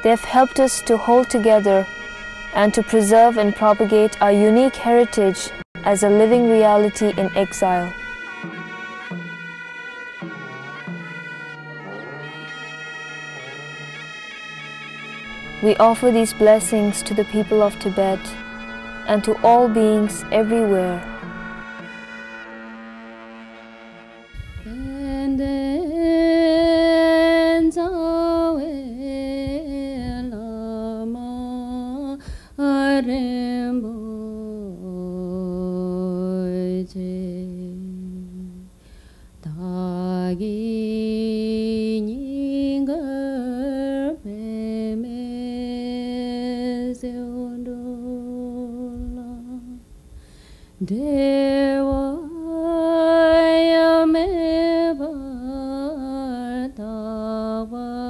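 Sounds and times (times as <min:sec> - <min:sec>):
person singing slow melody: 0:11.6 - 0:14.7, 0:15.3 - 0:22.2.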